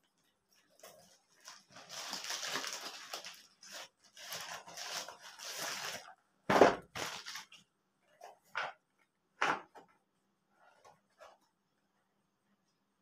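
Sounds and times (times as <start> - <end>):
plastic mailer bag rustling: 0.8 - 6.1, 6.8 - 7.6.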